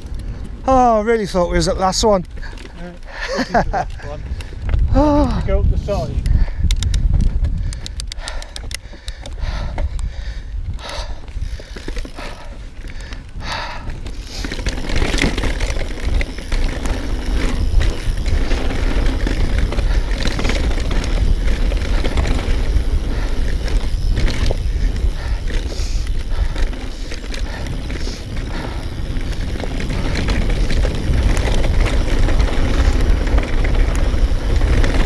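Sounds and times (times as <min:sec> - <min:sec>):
rider breathing hard: 0:00.0 - 0:00.6, 0:02.3 - 0:35.0
bike tyres on dirt trail: 0:00.0 - 0:35.0
wind buffeting microphone: 0:00.0 - 0:35.0
chain and frame rattle: 0:14.2 - 0:35.0.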